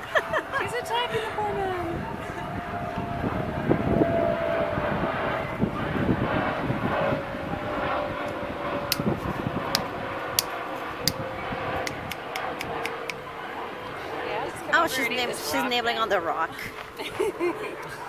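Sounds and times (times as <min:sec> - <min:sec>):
mechanical drone: 0:00.0 - 0:16.2
sharp short clicks: 0:11.8 - 0:13.2.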